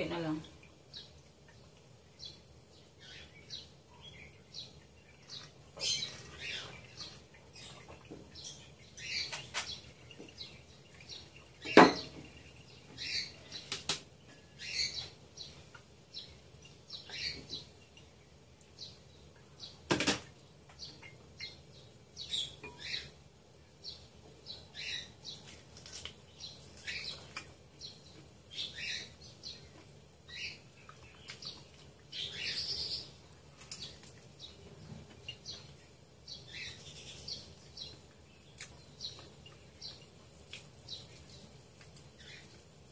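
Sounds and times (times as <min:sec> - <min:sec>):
wet chewing and slurping: 0:38.5 - 0:42.7.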